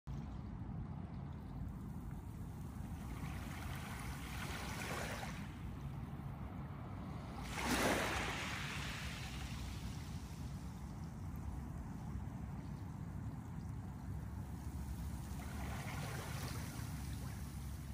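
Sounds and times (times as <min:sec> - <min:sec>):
waves washing over pebbles: 0:07.4 - 0:10.6
steady low rumble: 0:08.2 - 0:17.9.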